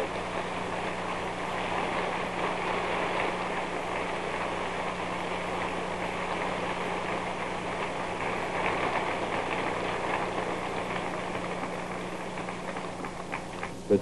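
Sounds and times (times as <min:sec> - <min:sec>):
low recording hum: 0:00.0 - 0:14.0
audience applauding: 0:08.3 - 0:14.0.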